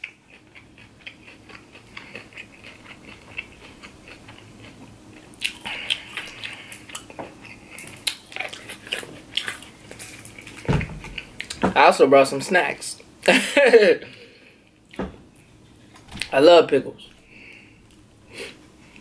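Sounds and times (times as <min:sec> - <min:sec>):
chewing salad with crunches: 0:00.0 - 0:11.6.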